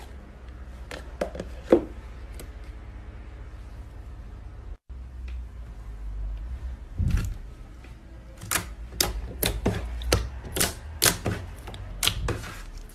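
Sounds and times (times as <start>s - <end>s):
slime squelching: 8.4s - 12.9s.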